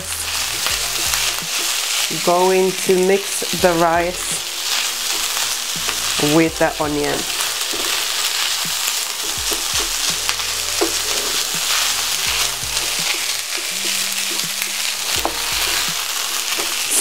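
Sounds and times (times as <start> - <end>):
rice and onions sizzling in pan: 0.0 - 17.0
spatula scraping and knocking pan: 0.1 - 17.0.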